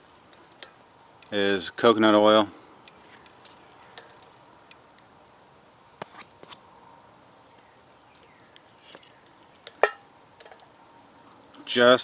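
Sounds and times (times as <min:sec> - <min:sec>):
faint clicks: 0:02.8 - 0:09.8.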